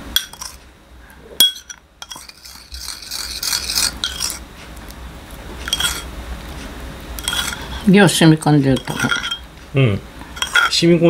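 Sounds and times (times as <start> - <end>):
dishes clinking: 0.2 - 0.6, 1.4 - 4.4, 5.6 - 6.1, 7.2 - 9.5, 10.3 - 10.8
utensils scraping and rustling: 0.2 - 0.7, 1.4 - 9.6, 10.2 - 11.0.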